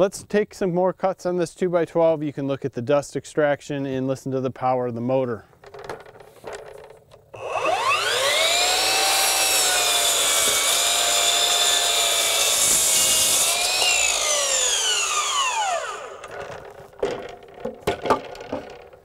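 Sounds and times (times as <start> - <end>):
miter saw motor whine: 7.4 - 16.7
saw blade cutting wood: 7.4 - 16.8.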